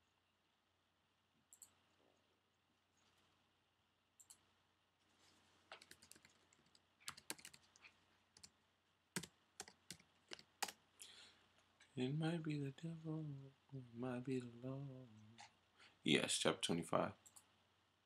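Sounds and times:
keyboard keystrokes: 0:05.8 - 0:07.6.

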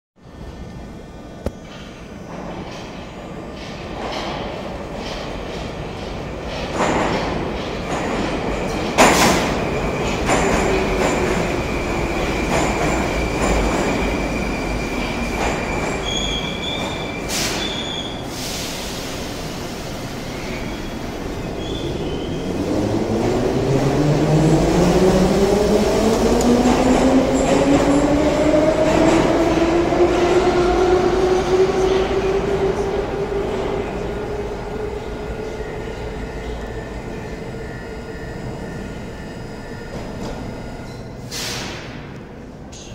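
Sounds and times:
train brakes squealing: 0:11.4 - 0:22.6
hiss of air: 0:17.3 - 0:20.3, 0:41.3 - 0:41.9.

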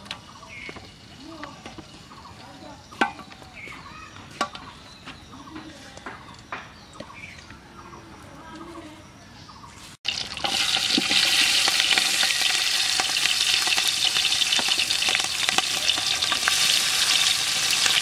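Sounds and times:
birds chirping: 0:00.0 - 0:10.0.

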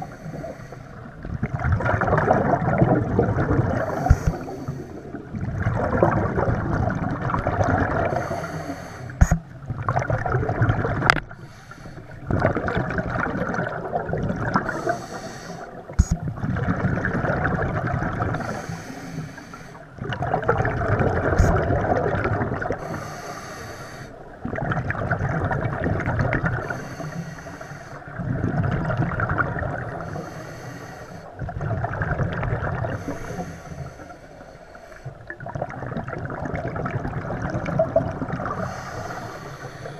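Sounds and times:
diver breathing through regulator: 0:00.0 - 0:01.0, 0:03.7 - 0:05.2, 0:08.0 - 0:09.4, 0:11.3 - 0:12.3, 0:14.5 - 0:15.9, 0:18.3 - 0:19.9, 0:22.8 - 0:24.2, 0:26.6 - 0:28.1, 0:29.9 - 0:31.4, 0:32.8 - 0:35.2, 0:38.5 - 0:39.9
exhaled bubbles rushing: 0:01.0 - 0:08.3, 0:09.2 - 0:11.5, 0:12.2 - 0:18.6, 0:20.0 - 0:23.0, 0:24.2 - 0:26.8, 0:28.1 - 0:30.1, 0:31.4 - 0:33.1, 0:35.2 - 0:39.7.

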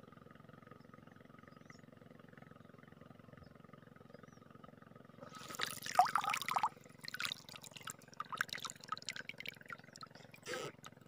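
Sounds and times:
water dripping: 0:05.3 - 0:10.4
fish splashing at surface: 0:05.3 - 0:10.5.

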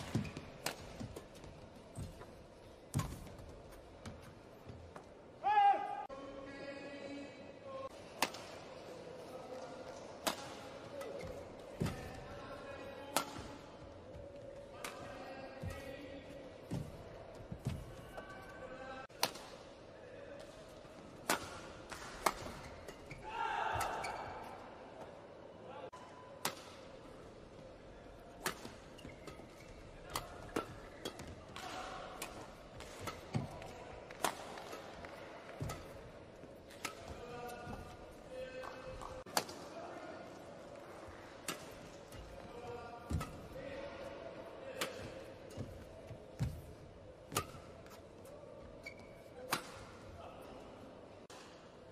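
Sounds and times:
racket hitting shuttlecock: 0:00.0 - 0:01.4, 0:08.1 - 0:08.7, 0:10.2 - 0:12.2, 0:13.1 - 0:13.6, 0:19.1 - 0:19.6, 0:21.2 - 0:24.2, 0:26.4 - 0:27.0, 0:28.4 - 0:39.7, 0:41.4 - 0:42.4, 0:43.0 - 0:43.8, 0:44.7 - 0:46.7, 0:47.3 - 0:48.0, 0:48.8 - 0:50.1
faint arena noise: 0:00.0 - 0:51.9
shoe squeaks: 0:48.7 - 0:49.5.

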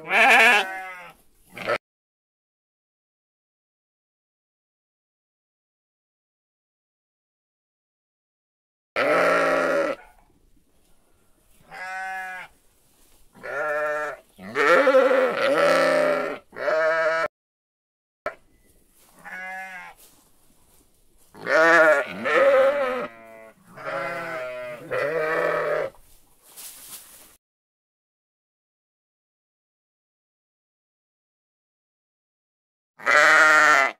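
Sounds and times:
sheep bleating: 0:00.0 - 0:01.8, 0:09.0 - 0:10.1, 0:11.7 - 0:12.6, 0:13.4 - 0:17.3, 0:19.2 - 0:20.1, 0:21.4 - 0:26.0, 0:33.0 - 0:33.9.

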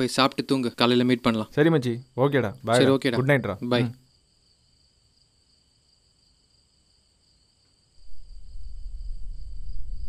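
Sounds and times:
crickets chirring: 0:00.0 - 0:10.0
deep low rumble: 0:08.0 - 0:10.0.

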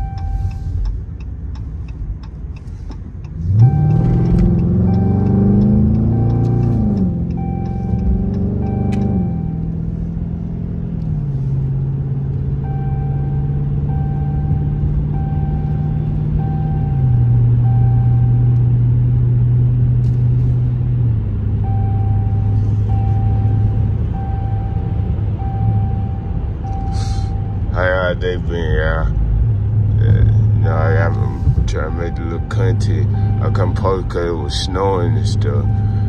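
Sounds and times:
short electronic beep: 0:00.0 - 0:00.6
car exhaust droning inside cabin: 0:00.0 - 0:36.0.

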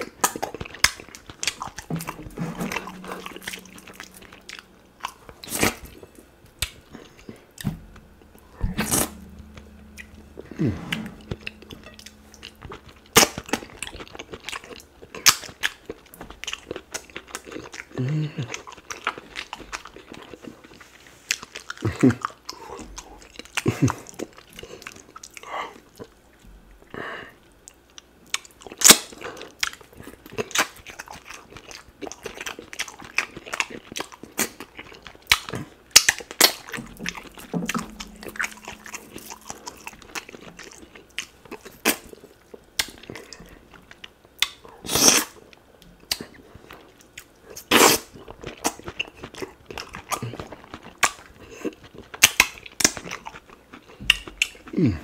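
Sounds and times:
wet chewing and mouth sounds: 0:27.7 - 0:55.0.

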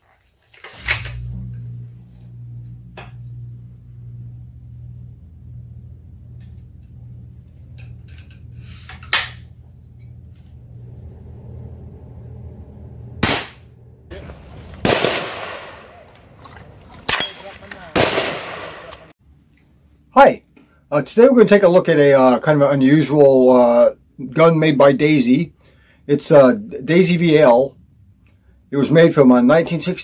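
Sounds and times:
steady low hum: 0:00.8 - 0:20.9
echoing gunshot: 0:13.2 - 0:19.1.

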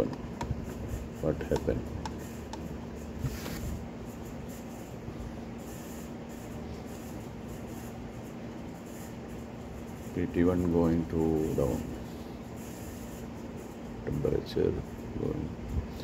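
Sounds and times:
low electrical hum: 0:00.0 - 0:16.0
soft rustle: 0:03.2 - 0:03.8.

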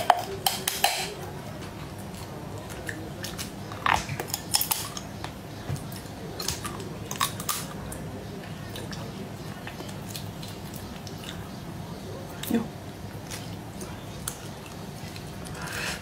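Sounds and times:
wet eating sounds: 0:00.0 - 0:16.0.

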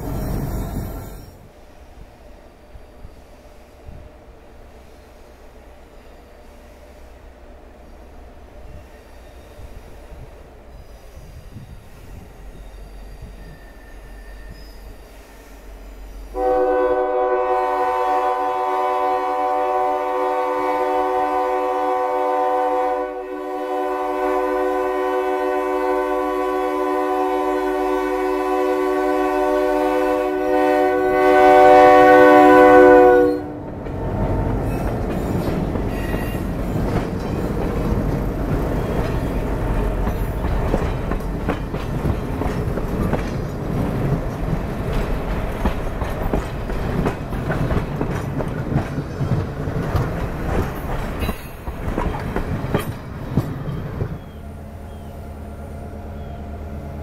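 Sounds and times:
diesel locomotive engine rumble: 0:00.0 - 0:57.0
locomotive air horn: 0:16.3 - 0:36.4
wheels clattering on rails: 0:33.6 - 0:54.4.

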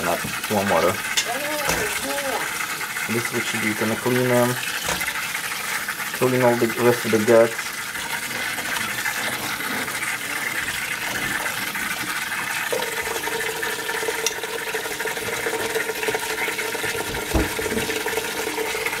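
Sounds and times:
tap water running into bowl: 0:00.0 - 0:19.0
knock: 0:17.0 - 0:18.0.

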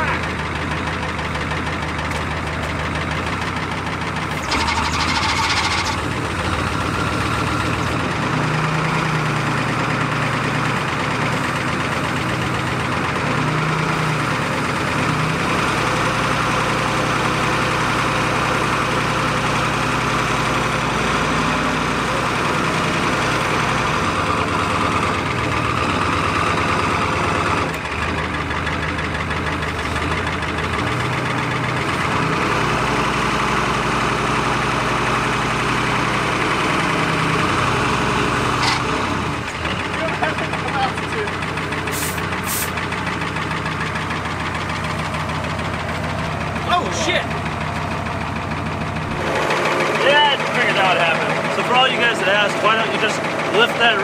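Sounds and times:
diesel truck engine idling: 0:00.0 - 0:54.0
short hiss: 0:41.9 - 0:42.7.

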